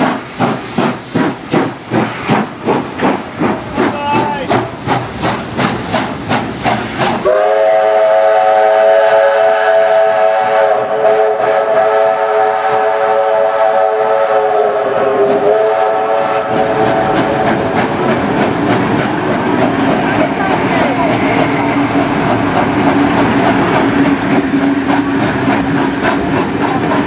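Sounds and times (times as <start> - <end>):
steam locomotive exhaust chuffing: 0.0 - 27.0
train wheels clicking: 0.0 - 27.0
steam whistle blast: 7.2 - 17.2.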